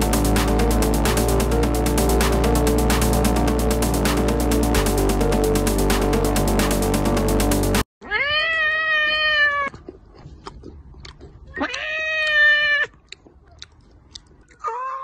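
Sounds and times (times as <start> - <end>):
cat meowing: 8.0 - 9.7, 11.5 - 12.9, 14.6 - 15.0
crunching bites of food: 9.7 - 14.7.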